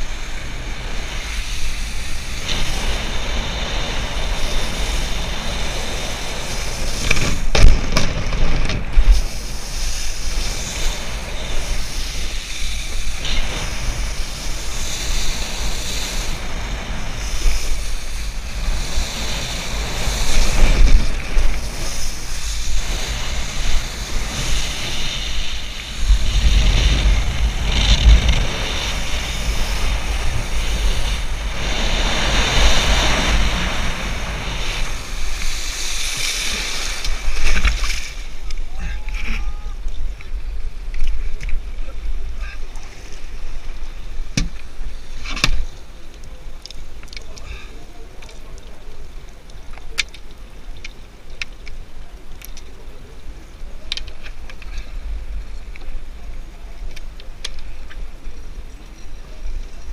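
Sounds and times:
wakeboard spray on water: 0.0 - 38.4
wind buffeting microphone: 0.0 - 42.4
heavy rumble: 2.2 - 11.8, 13.0 - 35.4.

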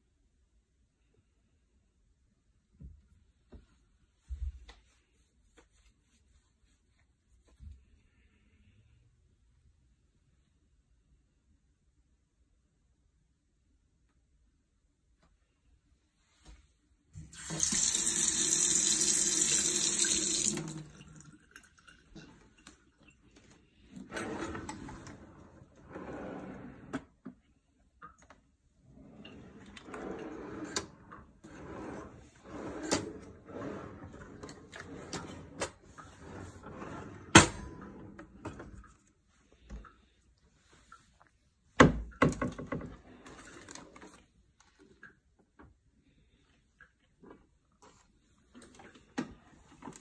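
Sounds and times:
faucet running into sink: 17.3 - 22.8
drawers sliding open and shut: 23.8 - 27.2, 28.8 - 38.9.

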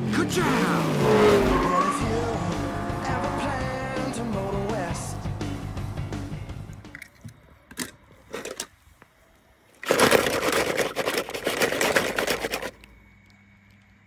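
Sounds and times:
toy cars rattling in basket: 9.8 - 12.8.

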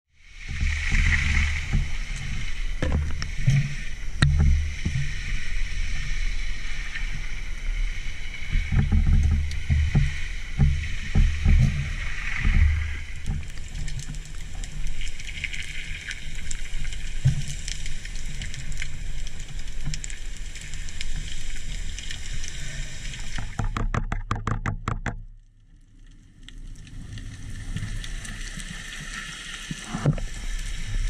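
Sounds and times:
underwater water rumbles: 0.1 - 31.0.

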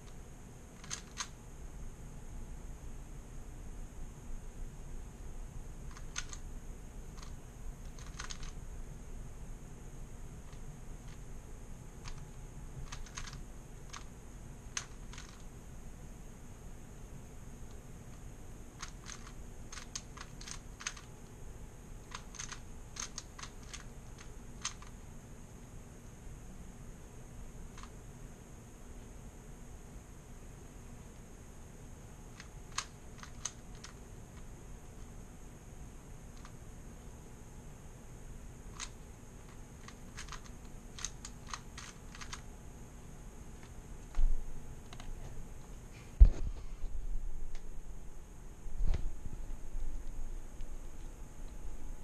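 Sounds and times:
puzzle cube clicking: 0.8 - 1.3, 5.9 - 6.4, 7.2 - 8.6, 12.0 - 14.1, 14.7 - 15.5, 18.8 - 21.1, 22.0 - 24.9, 32.3 - 34.5, 38.7 - 42.4.

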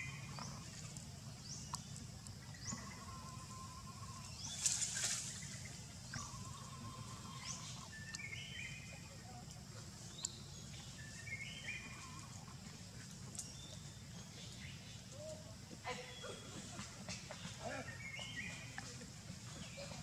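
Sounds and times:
birds chirping: 0.0 - 20.0
rustling: 4.5 - 5.7.

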